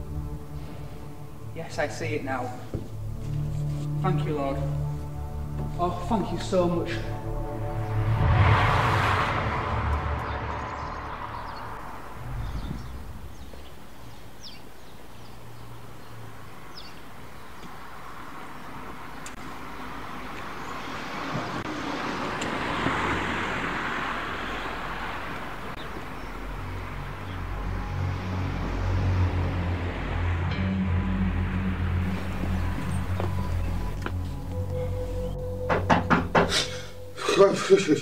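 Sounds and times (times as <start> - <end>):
low steady music notes: 0.0 - 11.1, 25.9 - 38.0
car passing: 0.0 - 38.0.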